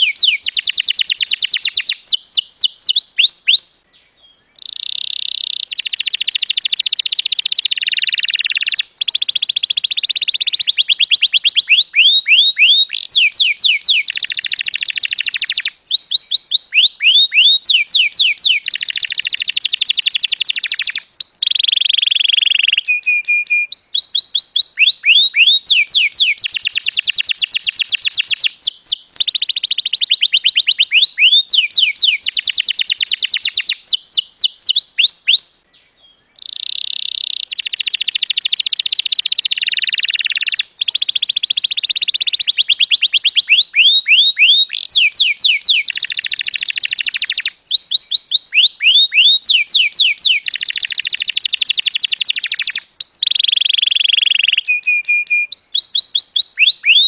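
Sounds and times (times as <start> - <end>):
canary singing fast trills: 0.0 - 57.0.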